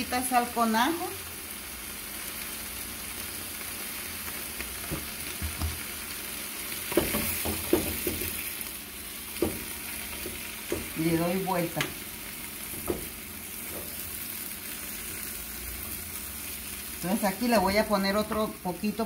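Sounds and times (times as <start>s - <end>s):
leaves sizzling in a pot: 0.0s - 19.0s
knocks and rustles in pot: 6.9s - 8.4s, 9.3s - 11.0s, 12.7s - 14.0s.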